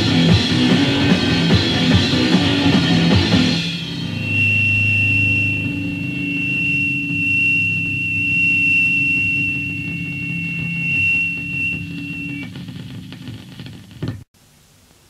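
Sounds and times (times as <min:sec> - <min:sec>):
electric guitar feedback squeal: 0:00.8 - 0:13.7
ringing guitar notes: 0:02.6 - 0:12.6.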